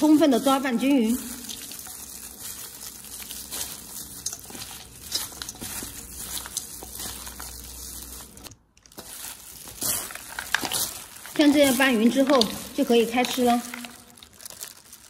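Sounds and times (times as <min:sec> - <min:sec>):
plastic gloves crinkling and rustling: 0:00.0 - 0:15.0.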